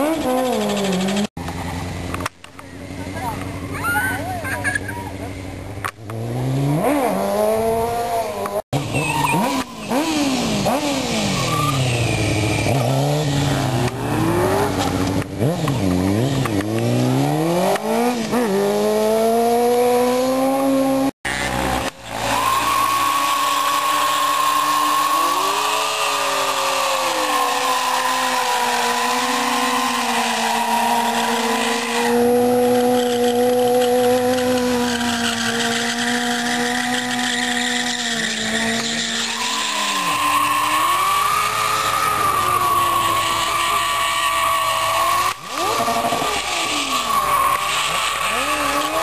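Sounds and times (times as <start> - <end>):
motorcycle engines revving: 0.0 - 49.0
tyre screeching: 8.8 - 15.2, 21.3 - 49.0.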